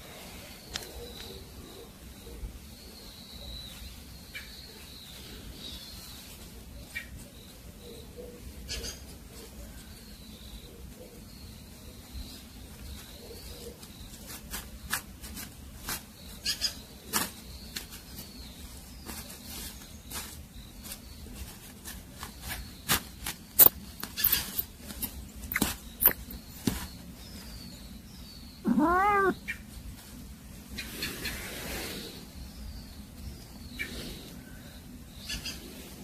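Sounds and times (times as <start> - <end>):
short sharp clicks: 23.6 - 24.4
cat meowing: 28.7 - 29.4.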